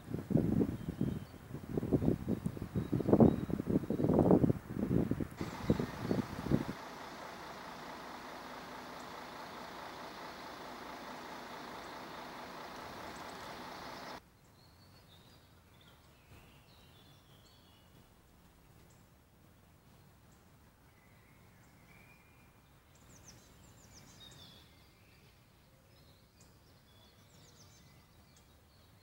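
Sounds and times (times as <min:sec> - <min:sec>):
faint songbird chirps: 0:00.6 - 0:04.4, 0:05.4 - 0:18.1, 0:18.9 - 0:29.0.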